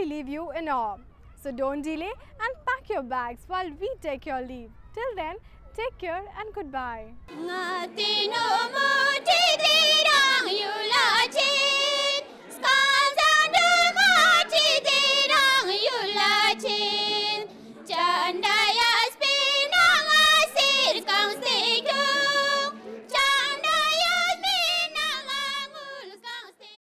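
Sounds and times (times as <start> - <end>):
high singing voice: 7.3 - 26.8.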